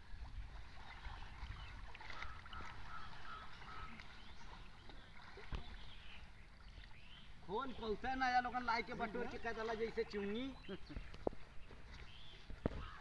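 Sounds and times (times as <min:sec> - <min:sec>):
river water sloshing and splashing: 0:00.0 - 0:13.0.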